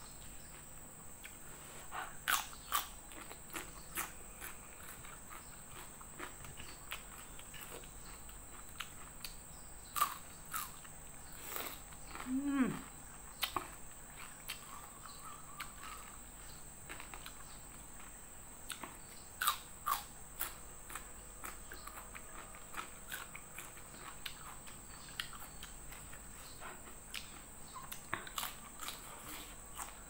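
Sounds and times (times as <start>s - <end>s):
person chewing and lip smacking: 11.5s - 16.2s, 18.7s - 30.0s.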